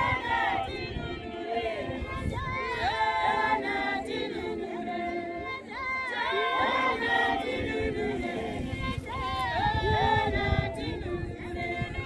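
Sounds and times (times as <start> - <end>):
congregation singing a hymn: 0.0 - 12.0.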